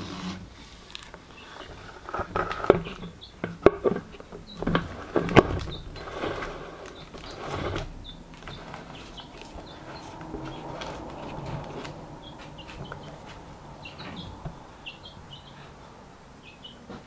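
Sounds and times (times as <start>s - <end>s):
plastic knocking and rubbing: 1.6s - 14.6s.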